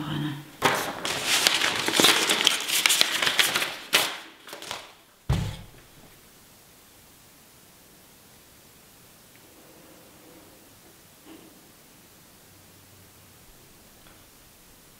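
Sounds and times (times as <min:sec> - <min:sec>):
paper rustling and crinkling: 0:00.6 - 0:05.0
soft thud: 0:05.3 - 0:05.8.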